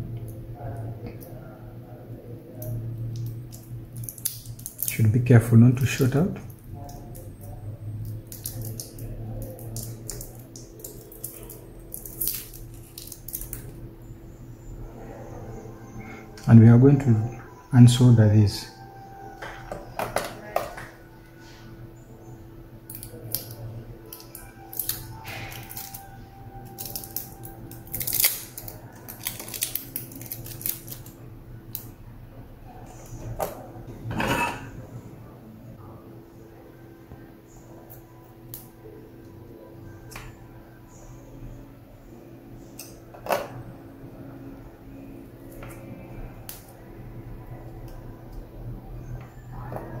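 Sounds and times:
small crinkles: 3.2 - 5.0, 6.8 - 13.7, 22.9 - 31.9.

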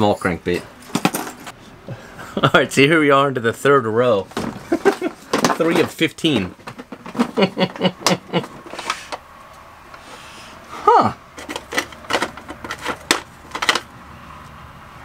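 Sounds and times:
plastic box clicking and rattling: 4.8 - 7.4, 11.4 - 13.9.

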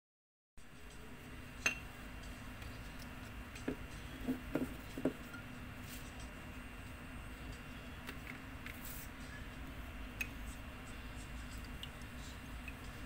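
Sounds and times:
steady low hum: 0.6 - 13.0
paintbrush clinking on ceramic: 1.6 - 1.9.

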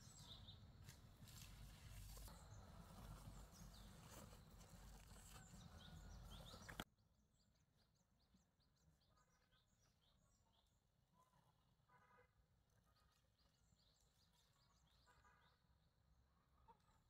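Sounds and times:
small birds chirping: 0.0 - 11.4.

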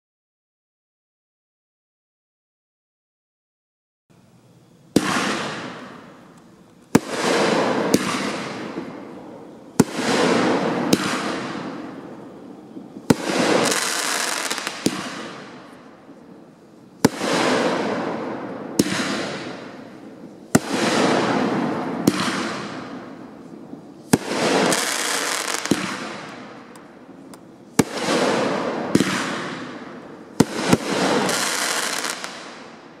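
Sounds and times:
crackling of bursting fireworks: 4.2 - 33.0
fireworks bangs: 4.9 - 33.0.

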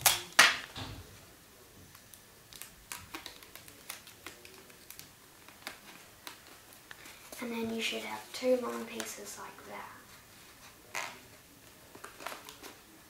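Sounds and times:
paper being rolled crackling: 1.9 - 9.2, 10.0 - 13.0.

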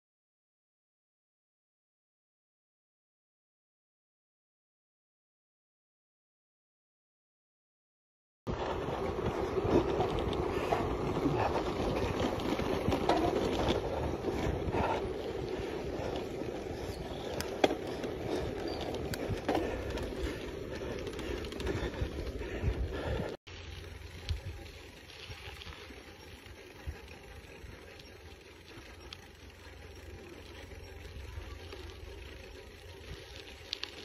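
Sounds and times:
wind buffeting microphone: 8.5 - 23.4
bike tyre rumble on dirt: 8.5 - 34.0.

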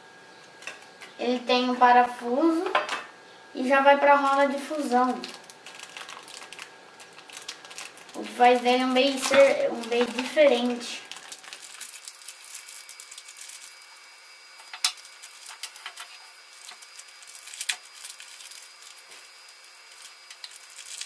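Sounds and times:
faint steady hum: 0.0 - 21.0
plastic bag rustling: 4.2 - 21.0.

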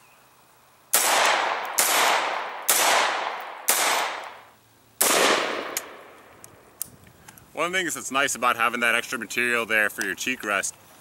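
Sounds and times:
rifle shots echoing: 0.9 - 6.3.

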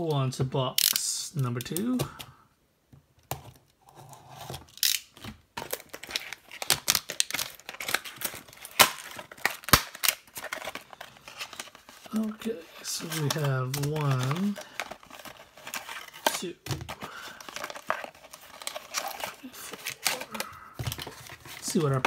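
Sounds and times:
plastic wrap crinkling and ripping: 4.5 - 22.0.

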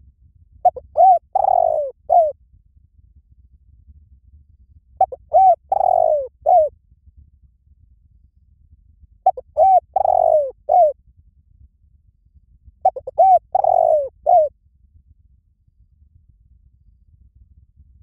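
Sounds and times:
dove cooing: 0.6 - 2.3, 5.0 - 6.7, 9.3 - 10.9, 12.8 - 14.5.

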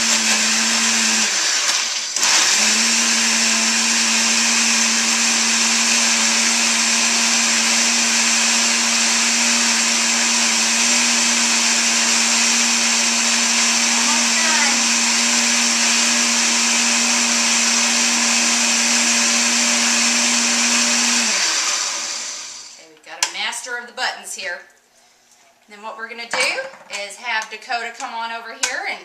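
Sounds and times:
blender running: 0.0 - 22.8.

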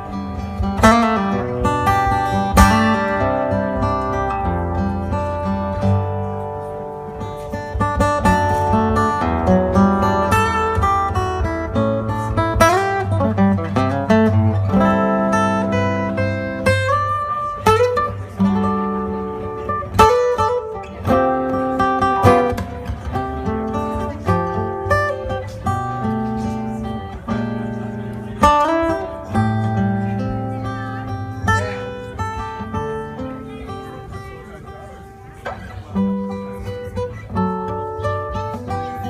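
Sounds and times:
acoustic guitar playing: 0.0 - 39.0.

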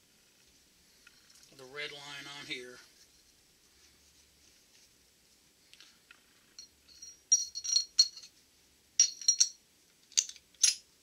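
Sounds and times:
steel parts clinking and ringing: 6.6 - 8.3, 9.0 - 10.9.

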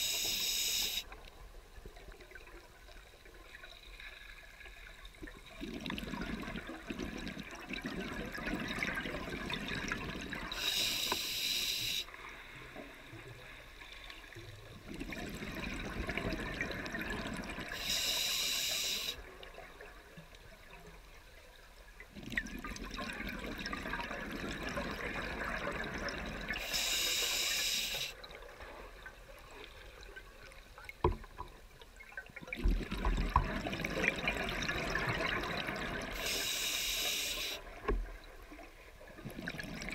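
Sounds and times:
regulator hissing on inhale: 0.0 - 1.1, 10.5 - 12.2, 17.7 - 19.2, 26.6 - 28.2, 36.1 - 37.7.

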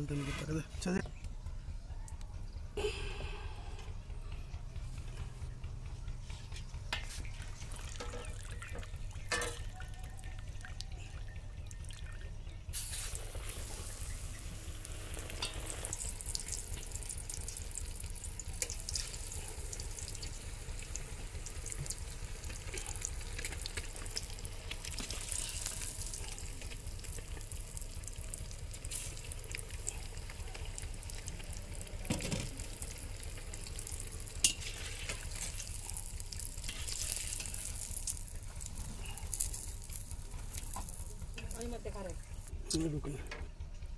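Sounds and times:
low rumble: 0.0 - 43.9
food sizzling in hot oil: 12.8 - 42.5.

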